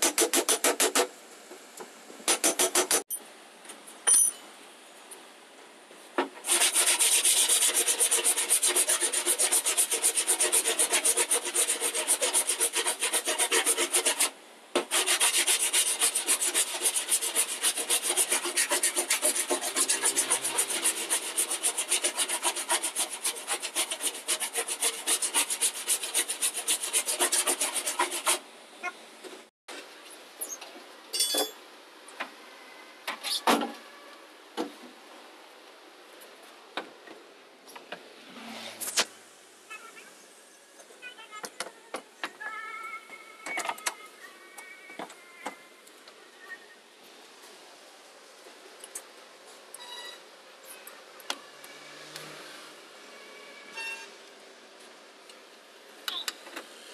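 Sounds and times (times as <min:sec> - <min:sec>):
file rasping on body filler: 0:00.0 - 0:01.1, 0:06.5 - 0:28.4.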